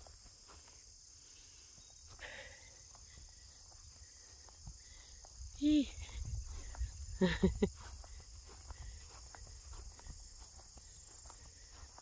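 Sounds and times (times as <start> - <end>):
insects chirping: 0.0 - 12.0.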